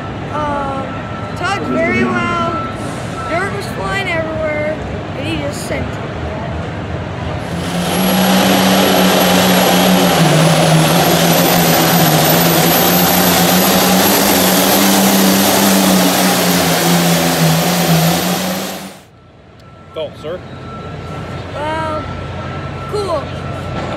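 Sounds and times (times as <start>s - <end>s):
diesel tractor engine at full throttle: 7.0s - 19.1s.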